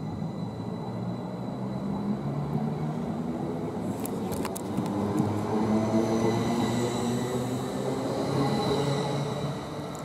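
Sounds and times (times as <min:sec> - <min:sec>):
electric train passing with whine: 0:00.0 - 0:10.0.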